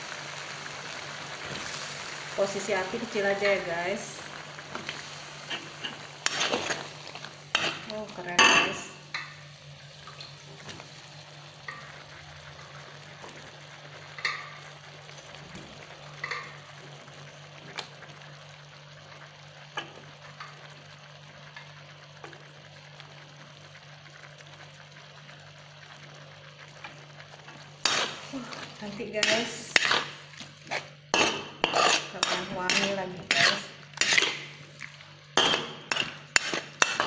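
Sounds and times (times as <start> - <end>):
food sizzling in a pan: 0.0 - 37.0
spatula scraping a pan: 5.4 - 6.9, 27.8 - 28.4, 29.2 - 34.6, 35.4 - 37.0.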